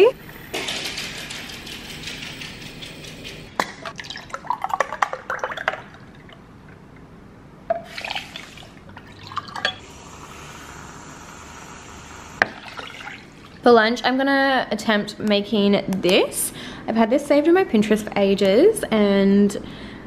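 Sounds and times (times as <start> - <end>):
liquid pouring and splashing: 3.6 - 6.5, 7.8 - 9.8, 12.4 - 13.6.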